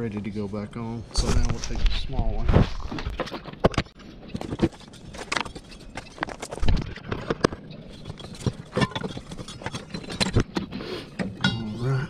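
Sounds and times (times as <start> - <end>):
tools and metal parts clicking: 4.3 - 11.7.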